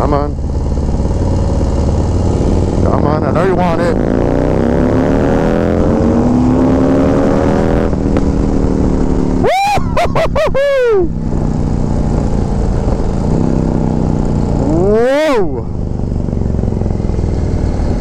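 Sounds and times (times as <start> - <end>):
motorcycle engine accelerating: 0.0 - 18.0
person whooping yell: 9.4 - 11.2.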